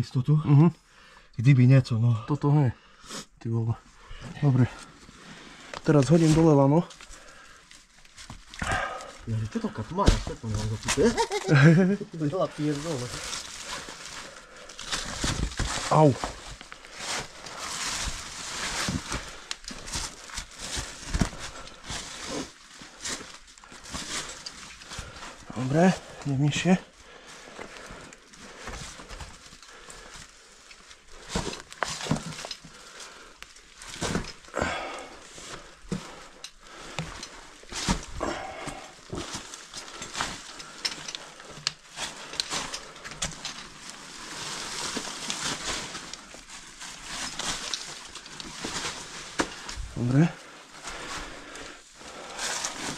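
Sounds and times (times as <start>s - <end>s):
scraping and shuffling on rock: 4.2s - 52.9s
person breathing hard: 7.0s - 7.7s, 8.6s - 9.3s, 26.9s - 31.7s, 34.4s - 43.2s, 49.4s - 52.9s.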